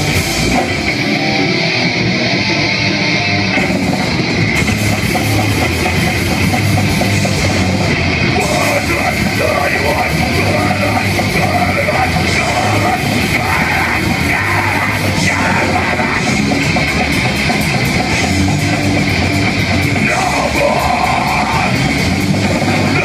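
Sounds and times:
punk band playing live: 0:00.0 - 0:23.0
shouted vocals: 0:08.4 - 0:16.4, 0:20.0 - 0:22.0.

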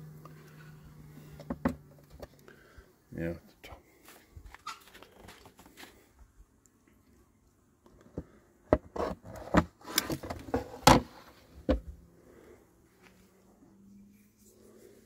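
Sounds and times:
plastic tray knocking and scraping: 0:08.7 - 0:11.9.

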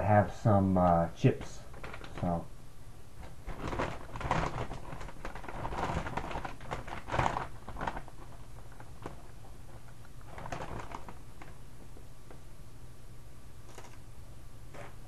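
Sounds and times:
chip bag crinkling: 0:01.6 - 0:02.4, 0:03.2 - 0:11.9.

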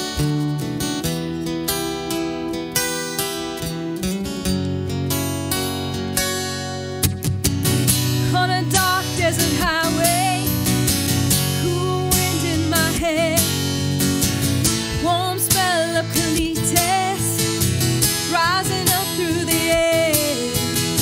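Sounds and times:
acoustic guitar strumming chords: 0:00.0 - 0:21.0
woman singing with vibrato: 0:08.3 - 0:10.7, 0:11.4 - 0:13.7, 0:14.9 - 0:20.8.

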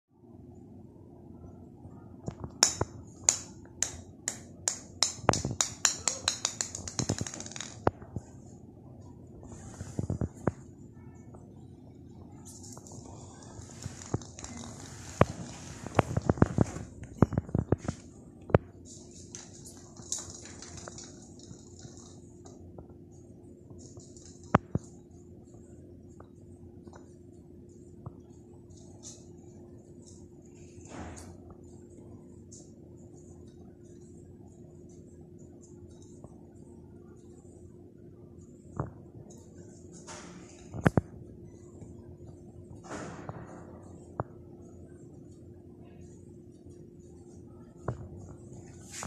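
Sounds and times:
steady low hum: 0:00.1 - 0:49.0
plastic ball bouncing on tile: 0:02.3 - 0:08.2, 0:19.3 - 0:22.5.

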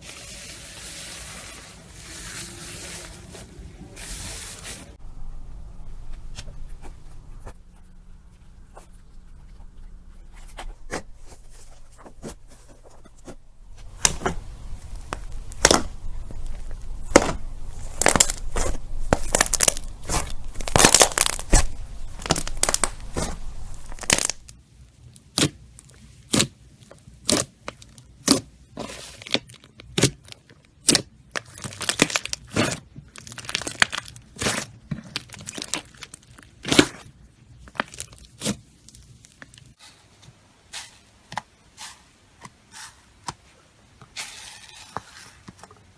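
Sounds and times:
slime crackling and popping: 0:13.7 - 0:28.5, 0:29.2 - 0:37.0, 0:37.6 - 0:39.8.

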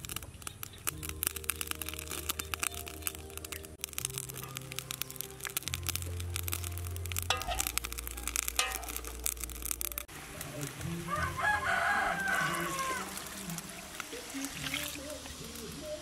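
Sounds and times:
cooking fire crackling: 0:00.0 - 0:16.0
rooster crowing: 0:10.9 - 0:13.6.

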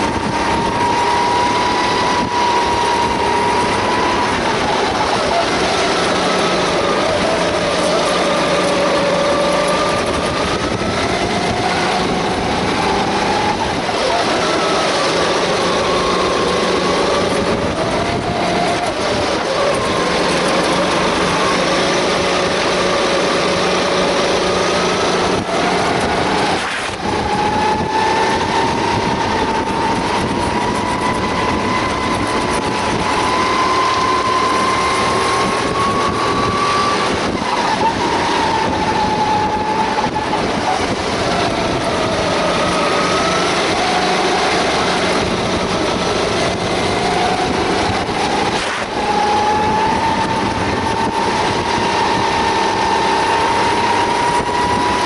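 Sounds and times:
kart engine revving: 0:00.0 - 0:55.0.

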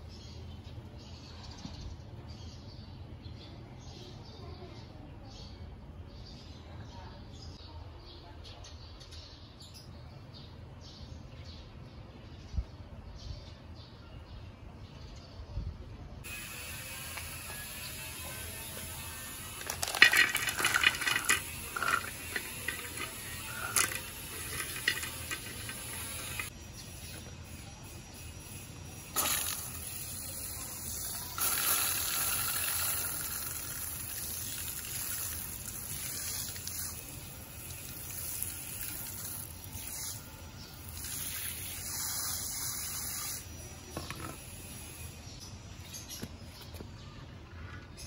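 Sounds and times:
pebbles clattering into stone bowl: 0:19.4 - 0:26.5, 0:29.2 - 0:37.0.

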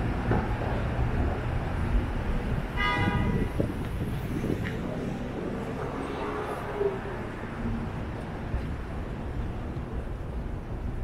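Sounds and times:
street traffic: 0:00.0 - 0:11.0
car horn honk: 0:02.7 - 0:03.6.

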